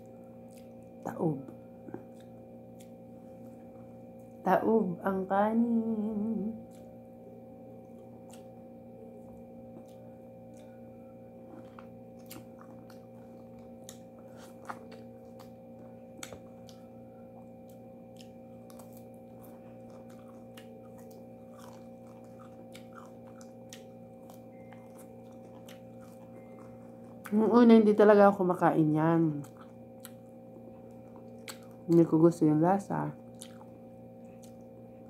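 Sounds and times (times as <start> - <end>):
chewing: 0.0 - 1.0, 1.8 - 4.4, 6.6 - 7.0, 7.8 - 8.6, 9.2 - 27.4, 29.3 - 32.1, 33.2 - 35.0
steady background hum: 0.0 - 35.0.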